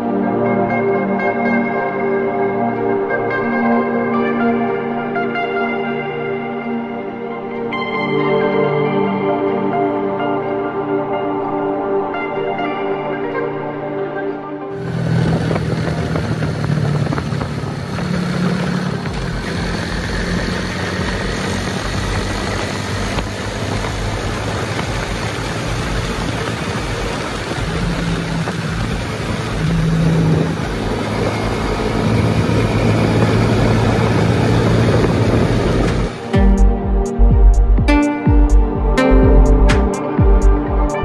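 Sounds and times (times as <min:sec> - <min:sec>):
steady rushing noise: 0:14.7 - 0:41.0
motorcycle engine running: 0:14.8 - 0:41.0.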